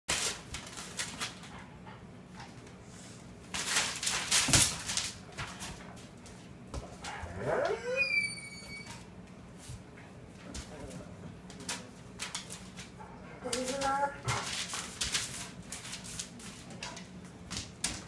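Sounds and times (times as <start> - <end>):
dog claws scrabbling on tile: 0.1 - 1.7, 3.4 - 7.2, 10.4 - 18.0
dog whimpering: 7.2 - 9.0.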